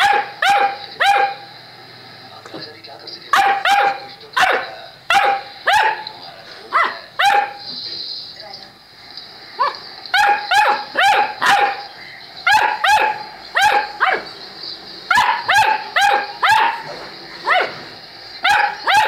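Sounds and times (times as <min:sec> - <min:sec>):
puppy yapping: 0:00.0 - 0:01.5, 0:03.3 - 0:06.1, 0:06.7 - 0:07.6, 0:09.6 - 0:14.3, 0:15.1 - 0:19.0.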